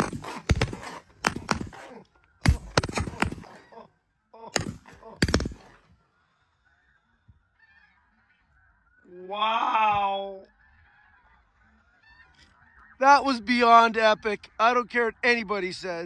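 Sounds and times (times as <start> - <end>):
faint geese calling: 0.0 - 16.0
shotgun blasts: 4.6 - 5.8.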